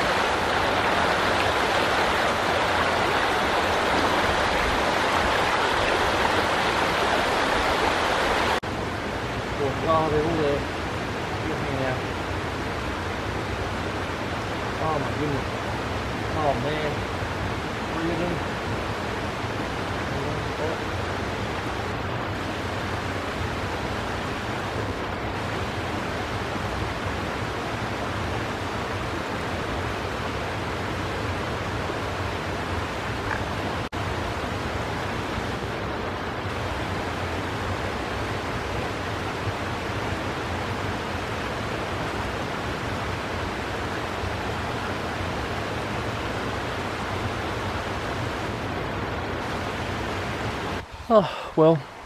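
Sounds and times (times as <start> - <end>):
water rushing over rocks: 0.0 - 52.0.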